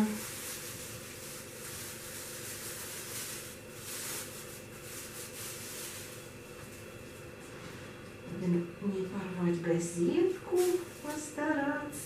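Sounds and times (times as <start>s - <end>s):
newspaper rustling: 0.0s - 6.9s, 10.5s - 11.4s
plastic bag crinkling: 0.0s - 7.2s, 10.4s - 11.5s.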